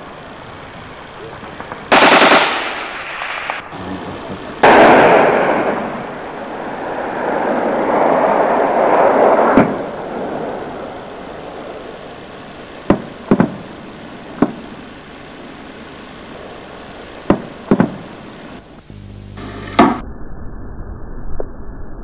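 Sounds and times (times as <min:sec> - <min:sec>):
loud explosion blast: 0:01.5 - 0:11.8
short sharp gunshot reports: 0:04.6 - 0:06.2
rushing noise ending in crack: 0:04.7 - 0:11.3.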